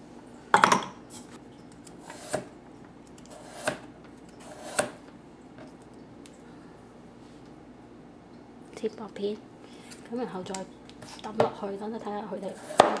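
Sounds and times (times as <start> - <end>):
knife slicing carrot: 3.3 - 5.0.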